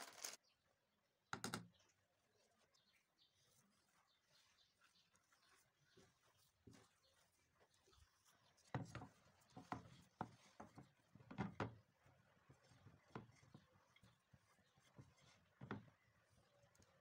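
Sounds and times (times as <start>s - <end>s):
hands kneading mashed potato: 2.0s - 17.0s.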